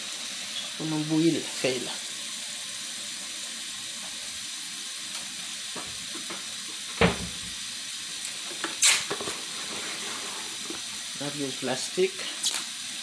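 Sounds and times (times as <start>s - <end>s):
tap water splashing into pot: 5.1s - 7.6s.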